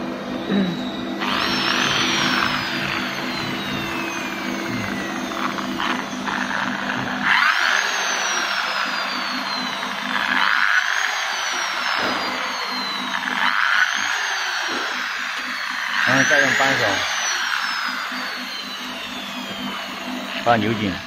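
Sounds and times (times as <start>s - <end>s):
low machine hum: 0.0s - 21.0s
power tool whine with hiss: 0.3s - 21.0s.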